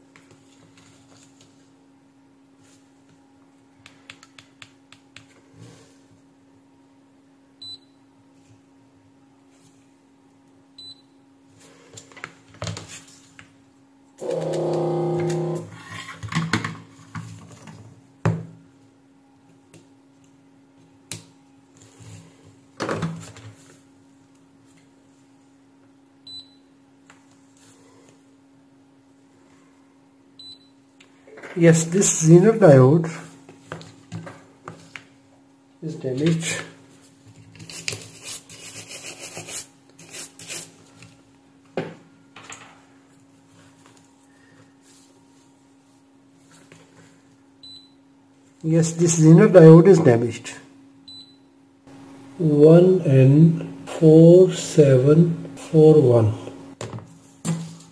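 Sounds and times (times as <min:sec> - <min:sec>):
faint steady hum: 0:00.0 - 0:57.9
toothbrush scrubbing circuit board: 0:38.1 - 0:40.7.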